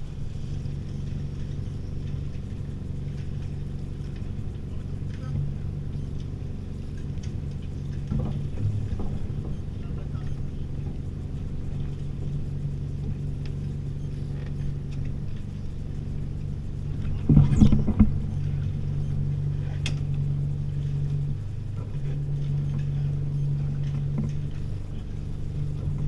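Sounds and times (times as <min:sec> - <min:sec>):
boat engine running at low revs: 0:00.0 - 0:26.0.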